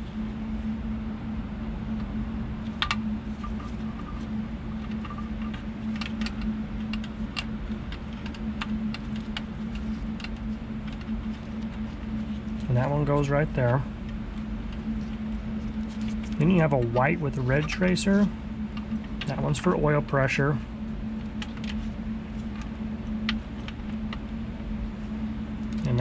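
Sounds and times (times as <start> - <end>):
steady low hum: 0.0 - 26.0
connector clicks and rattles: 4.8 - 13.2.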